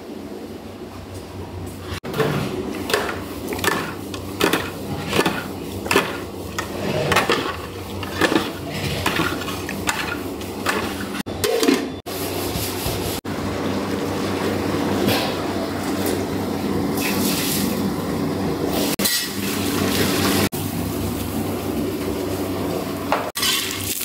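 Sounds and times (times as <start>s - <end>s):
metal spoon scraping a pot: 3.0s - 11.2s.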